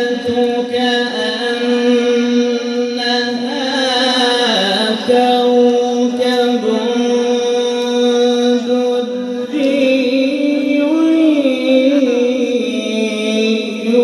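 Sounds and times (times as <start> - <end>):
man reciting melodically into microphone: 0.0 - 14.0.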